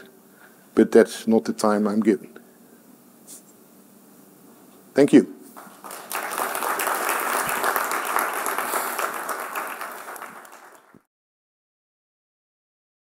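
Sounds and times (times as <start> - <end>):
audience applauding: 5.6 - 11.1.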